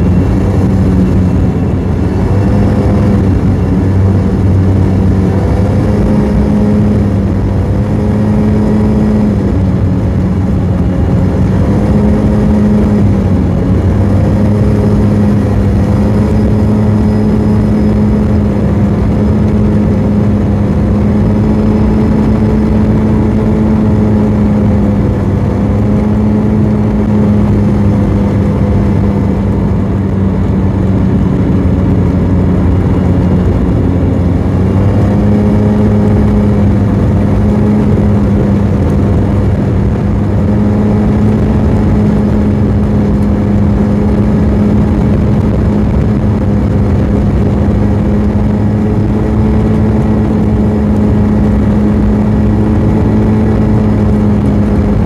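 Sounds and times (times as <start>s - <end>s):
scooter engine cruising: 0.0s - 55.0s
wind rushing: 0.0s - 55.0s.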